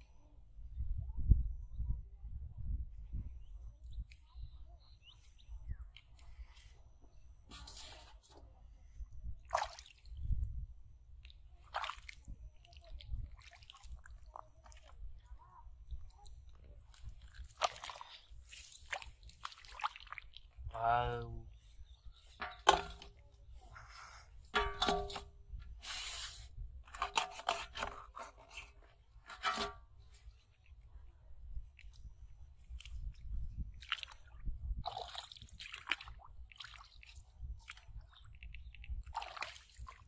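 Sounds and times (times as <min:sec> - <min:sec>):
sharp handling noises: 0:22.3 - 0:23.2, 0:24.5 - 0:30.3
plastic bottles clattering in metal bowl: 0:22.4 - 0:23.2, 0:24.5 - 0:25.3, 0:26.8 - 0:29.9.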